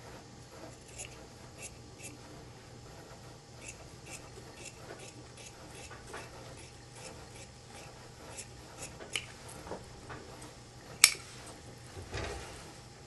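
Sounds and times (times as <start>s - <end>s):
shears snipping fabric: 0.6s - 2.2s, 3.6s - 9.8s.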